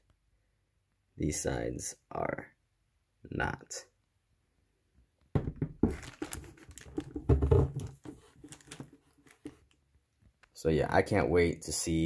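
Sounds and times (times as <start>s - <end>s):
cardboard box knocks: 5.4s - 6.2s, 7.0s - 8.2s
plastic wrap crinkling: 5.8s - 9.8s.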